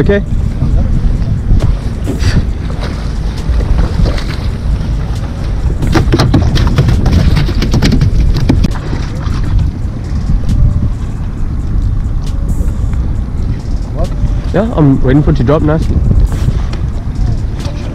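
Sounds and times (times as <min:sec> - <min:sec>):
wind buffeting microphone: 0:00.0 - 0:17.9
fish thrashing and knocking aboard: 0:00.6 - 0:11.2.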